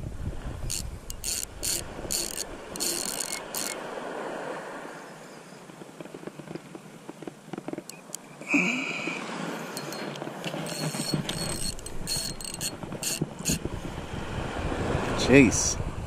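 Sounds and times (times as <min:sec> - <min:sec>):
fishing reel drag buzzing: 0:00.6 - 0:03.8, 0:08.9 - 0:13.7.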